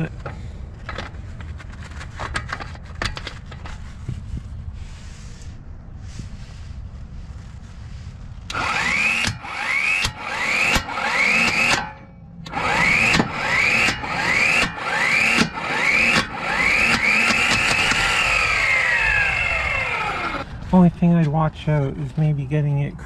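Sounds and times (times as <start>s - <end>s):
impact wrench spinning: 8.5s - 20.4s.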